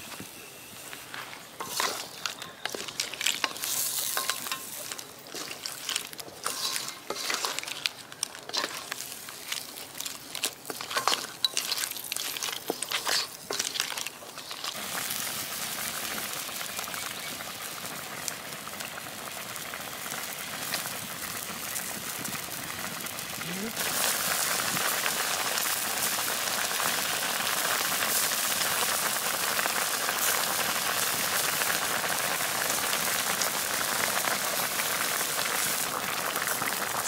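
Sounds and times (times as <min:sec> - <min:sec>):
food sizzling: 0:00.0 - 0:37.0
metal spatula scraping a pan: 0:01.6 - 0:14.8.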